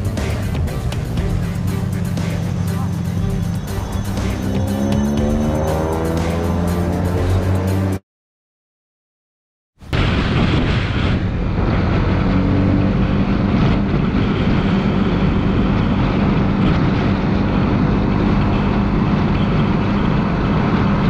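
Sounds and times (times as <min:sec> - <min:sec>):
motorcycle engine running: 0:00.0 - 0:08.0
wind rushing over microphone: 0:09.9 - 0:21.0.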